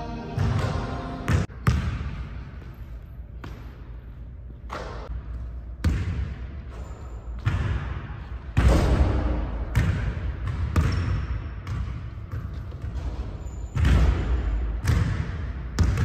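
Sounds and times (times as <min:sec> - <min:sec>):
basketballs bouncing on hardwood court: 0:00.3 - 0:16.0.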